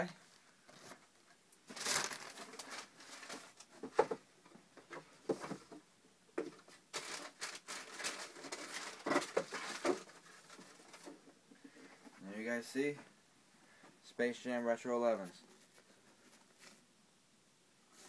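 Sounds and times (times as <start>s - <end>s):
tissue paper rustling: 1.7s - 3.6s, 6.9s - 11.1s.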